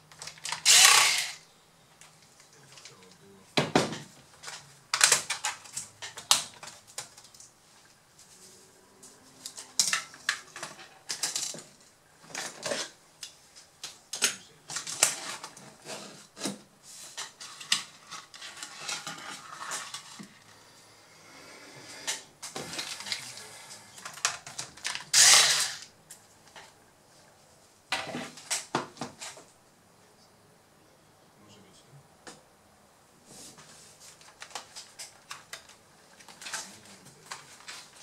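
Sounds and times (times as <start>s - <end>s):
laptop parts clattering: 2.0s - 7.5s.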